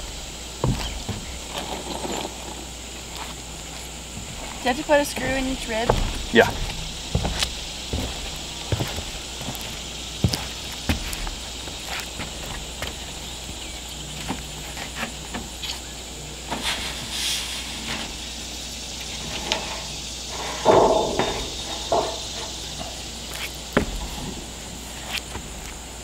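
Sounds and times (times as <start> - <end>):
clicks and knocks on metal roofing: 19.2 - 23.0.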